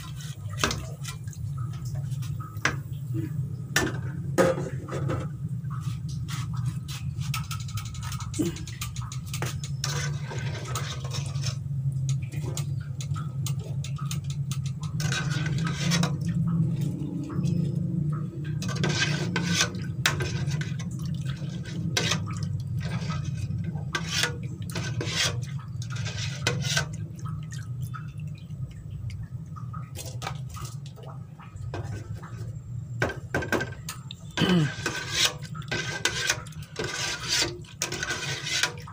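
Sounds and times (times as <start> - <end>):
low steady hum: 0.0 - 38.9
metal strainer scraping a pot: 4.5 - 17.8, 18.5 - 27.0, 34.6 - 38.9.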